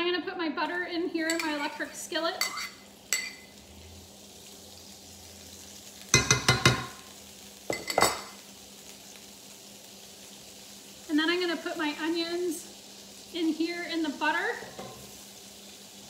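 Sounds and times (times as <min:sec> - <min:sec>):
butter sizzling in a skillet: 0:00.6 - 0:16.0
metal spoon knocking and clinking: 0:06.2 - 0:06.9.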